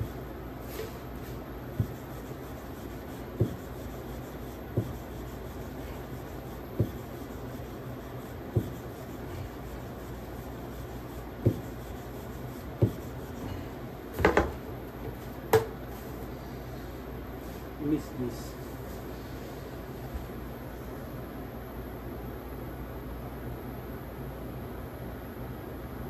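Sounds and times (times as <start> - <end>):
rolling pin rolling dough: 0.0 - 20.2
steady low hum: 0.0 - 26.0
rolling pin knocking on board: 0.7 - 13.4, 14.1 - 15.8.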